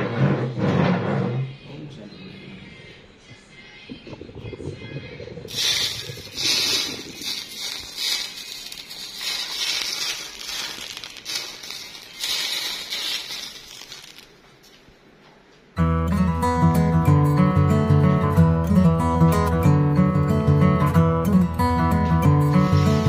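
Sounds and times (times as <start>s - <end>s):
hissing crackling noise: 3.8s - 14.9s.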